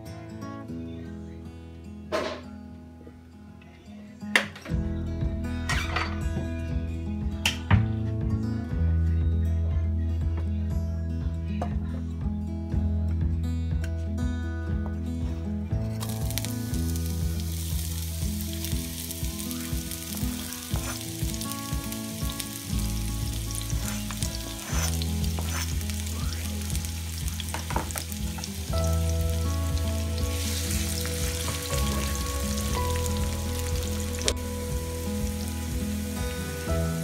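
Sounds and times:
onion and garlic sizzling in oil: 0:16.0 - 0:37.0
low hum shifting pitch: 0:22.7 - 0:37.0.

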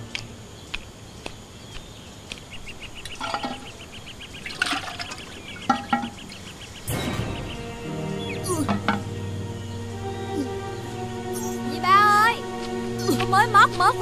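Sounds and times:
trickling water: 0:03.0 - 0:06.8.

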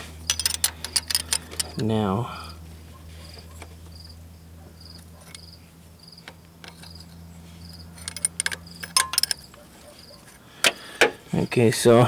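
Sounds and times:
steady low hum: 0:00.0 - 0:12.0
cricket chirping: 0:03.2 - 0:10.2.

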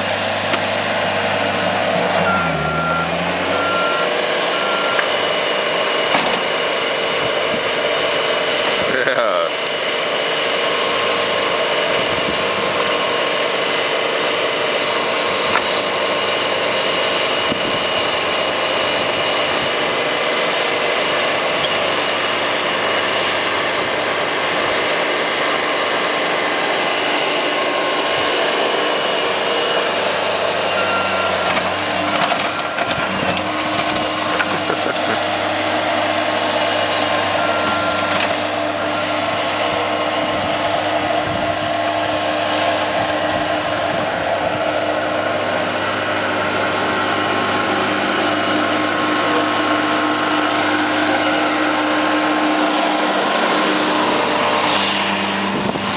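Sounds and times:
loader engine whining: 0:00.0 - 0:55.9.

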